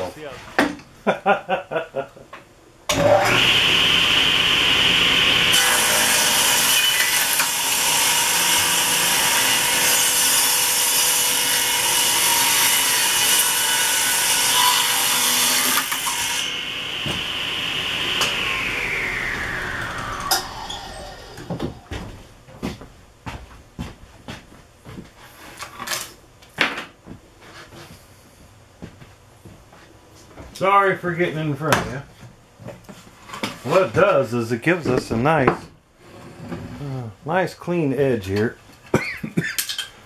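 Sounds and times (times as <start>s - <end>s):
saw cutting wood board: 2.9s - 22.1s
table saw whining: 2.9s - 22.2s.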